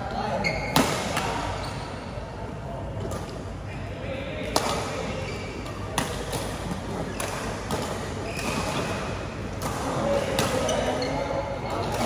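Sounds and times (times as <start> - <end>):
rackets hitting shuttlecock: 5.6 - 10.9.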